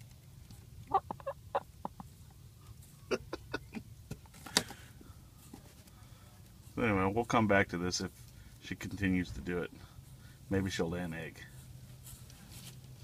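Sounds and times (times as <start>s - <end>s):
hen clucking: 0.8s - 2.4s.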